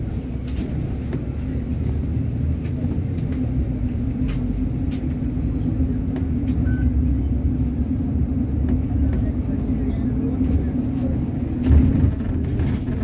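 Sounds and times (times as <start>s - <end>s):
bus engine hum and road rumble: 0.0s - 13.0s.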